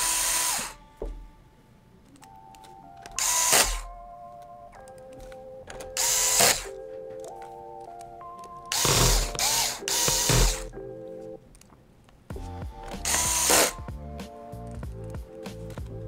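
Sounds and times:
electric screwdriver running: 0.0 - 0.8, 3.2 - 3.9, 6.0 - 6.7, 8.7 - 10.7, 13.0 - 13.8.

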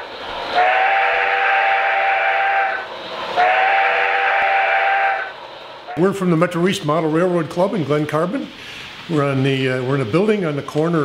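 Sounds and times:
train whistle blasts: 0.0 - 6.1.

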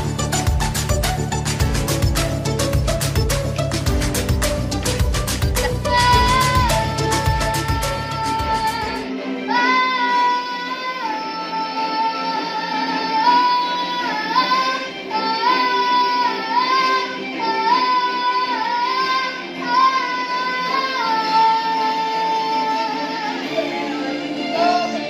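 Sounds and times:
karaoke backing track: 0.0 - 25.0
girl singing: 5.6 - 25.0.

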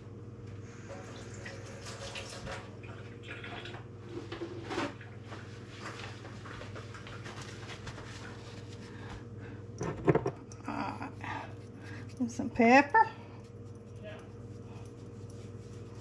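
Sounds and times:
steady electrical hum: 0.0 - 16.0
tap water running and splashing: 0.9 - 4.4.

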